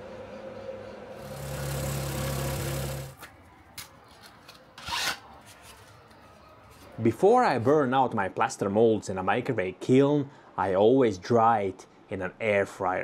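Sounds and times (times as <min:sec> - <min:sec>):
small power tool motor: 0:01.2 - 0:03.2.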